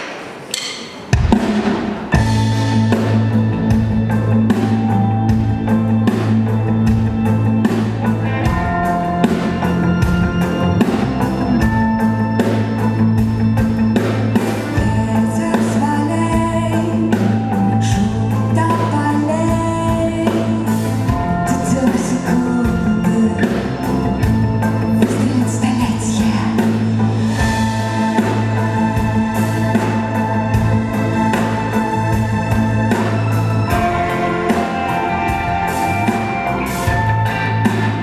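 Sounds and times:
rock band with strings playing: 0:00.0 - 0:38.0
woman singing: 0:14.7 - 0:23.9, 0:24.9 - 0:26.9.

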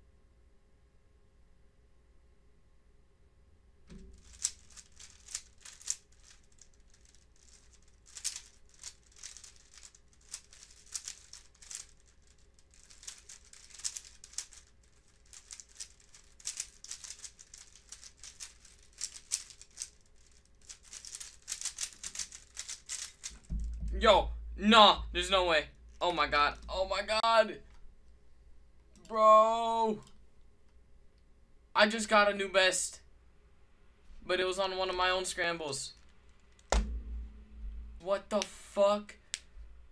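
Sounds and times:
plastic puzzle cube clicking: 0:04.2 - 0:23.4.

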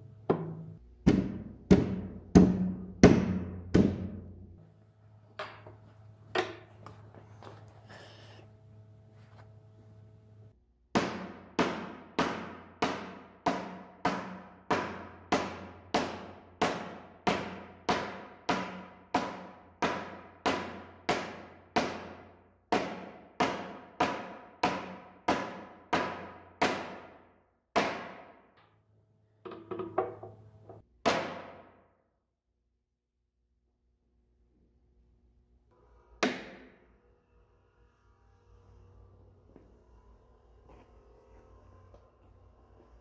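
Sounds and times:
hammer striking wood block: 0:00.3 - 0:04.4, 0:10.9 - 0:28.6, 0:31.0 - 0:31.9, 0:36.2 - 0:36.8.

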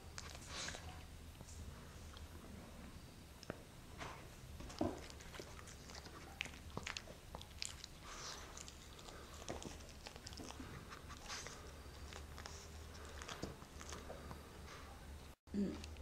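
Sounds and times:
dog chewing and licking: 0:00.0 - 0:01.1, 0:04.6 - 0:14.5.

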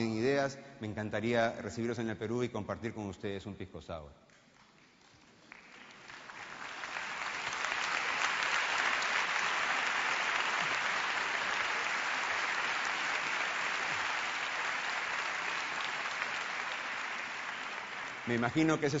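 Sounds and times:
audience applauding: 0:04.5 - 0:19.0.

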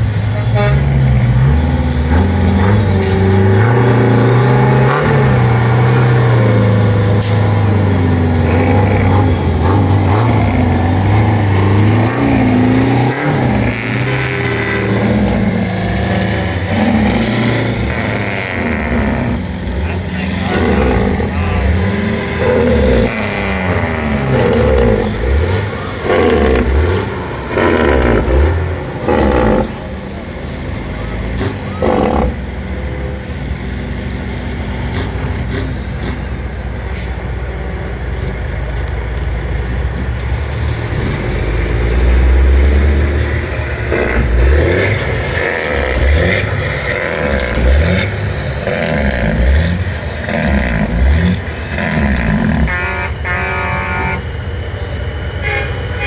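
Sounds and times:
trucks driving past: 0:00.0 - 0:56.0.

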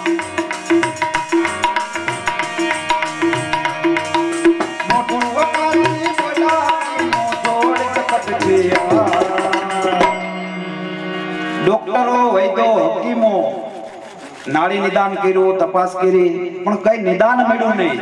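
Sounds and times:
tabla playing quick beat: 0:00.0 - 0:10.3
sustained melody instruments: 0:00.0 - 0:18.0
wavering melodic line: 0:00.7 - 0:13.2.

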